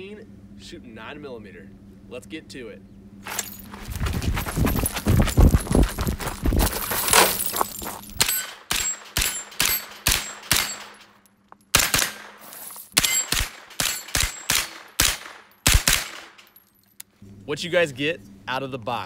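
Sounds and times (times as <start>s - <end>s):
rifle gunshots: 11.7s - 12.4s, 13.0s - 16.4s.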